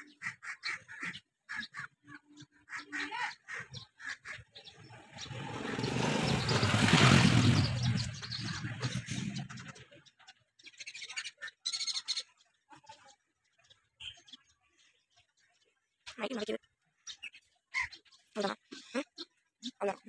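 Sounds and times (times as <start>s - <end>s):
birds chirping: 0.0s - 20.0s
rushing noise with deep rumble: 4.8s - 9.8s.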